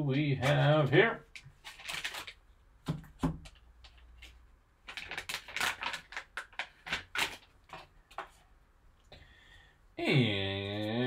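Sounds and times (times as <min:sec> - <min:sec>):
foil bag crinkling: 0:00.4 - 0:02.5, 0:04.0 - 0:08.0.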